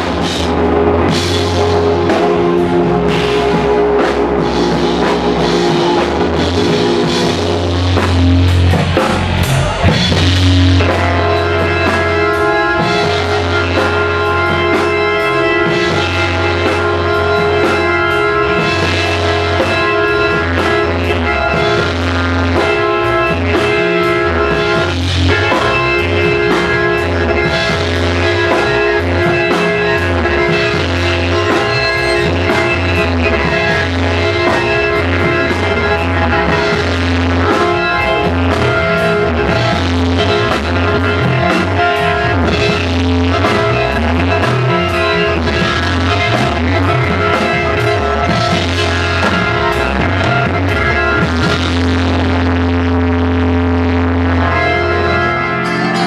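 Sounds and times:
drum kit: 0.0s - 56.0s
electric guitar: 0.0s - 56.0s
fretless bass: 0.0s - 56.0s.

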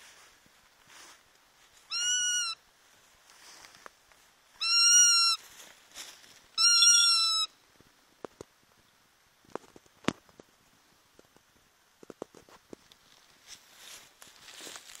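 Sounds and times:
hawk calling: 1.9s - 2.6s, 4.6s - 5.4s, 6.6s - 7.5s.

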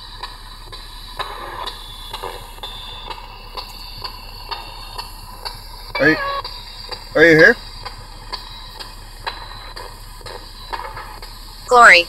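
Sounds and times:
radio static hiss: 4.2s - 8.2s, 8.8s - 12.0s.

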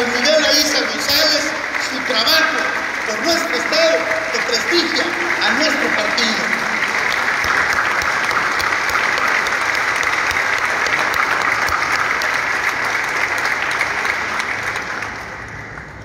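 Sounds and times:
audience applauding: 0.0s - 16.0s.

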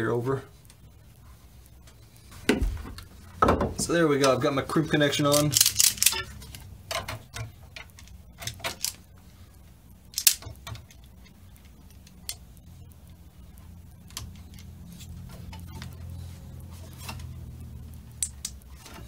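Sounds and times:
steady low hum: 0.0s - 19.0s
metallic clicks and clatter: 5.3s - 9.1s, 10.1s - 12.4s.

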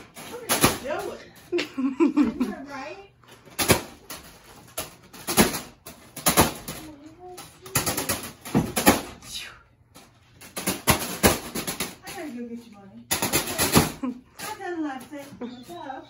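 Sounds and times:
fan blades slapping foil balloon: 3.3s - 12.5s, 13.1s - 15.3s.

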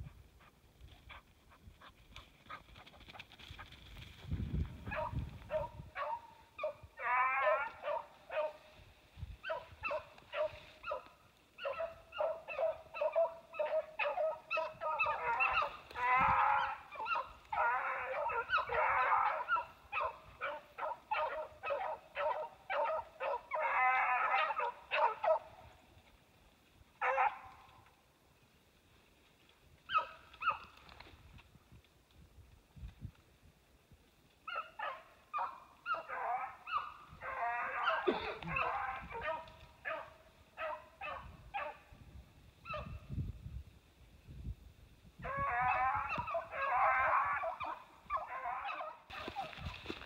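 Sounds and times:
hounds baying: 4.8s - 8.7s, 9.4s - 25.7s, 27.0s - 27.7s, 29.9s - 30.7s, 34.5s - 41.8s, 45.2s - 49.7s.

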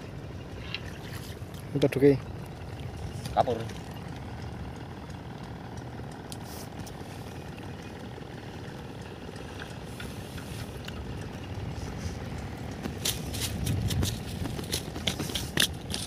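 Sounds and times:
low outdoor rumble: 0.0s - 16.0s
fish flapping on dry grass: 12.8s - 16.0s.

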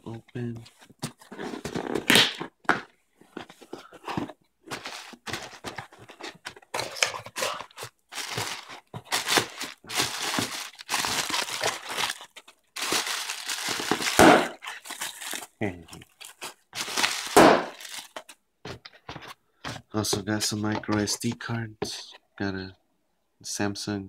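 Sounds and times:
cardboard box being opened: 0.8s - 2.1s, 3.3s - 15.5s
plastic packing crinkling: 3.8s - 19.2s.

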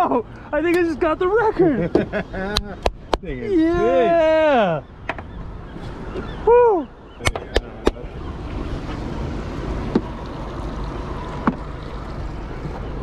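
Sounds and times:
wind: 0.0s - 13.0s
water washing around boat: 8.0s - 13.0s.

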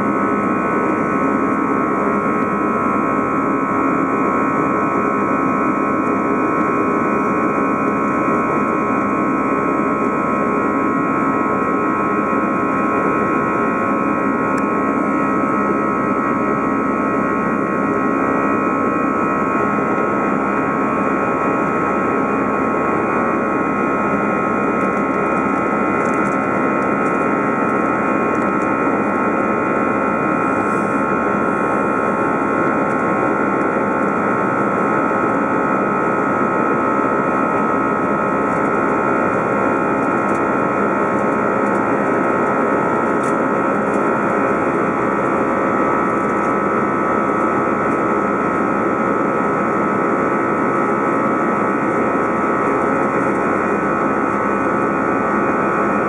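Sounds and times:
jet engine noise in cabin: 0.0s - 56.0s
steady engine whine: 0.0s - 56.0s.

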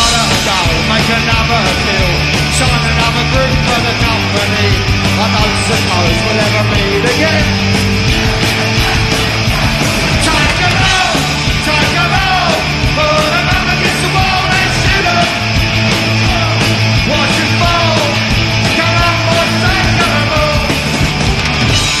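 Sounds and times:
bass guitar: 0.0s - 22.0s
distorted electric guitars: 0.0s - 22.0s
drums: 0.0s - 22.0s
shouted vocals: 3.5s - 20.9s.

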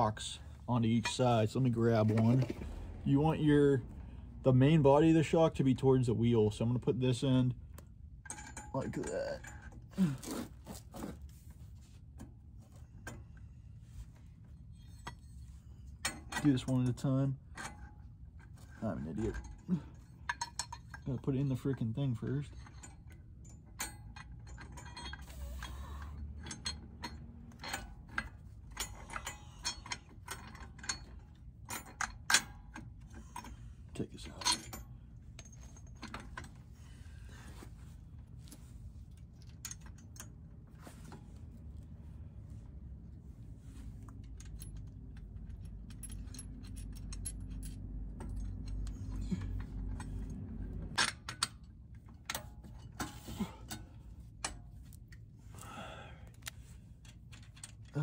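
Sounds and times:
low steady rumble: 0.0s - 58.0s
metal parts clinking: 16.0s - 36.6s, 44.1s - 55.2s.

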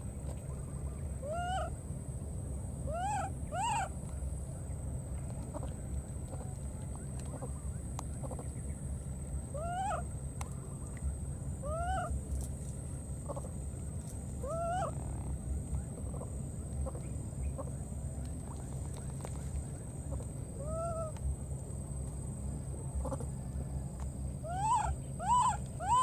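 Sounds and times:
steady low rumble: 0.0s - 26.0s
baby monkey coo calls: 1.2s - 1.8s, 2.9s - 4.0s, 9.5s - 10.1s, 11.6s - 12.2s, 14.4s - 15.4s, 20.0s - 21.2s, 23.0s - 23.4s, 24.4s - 26.0s.

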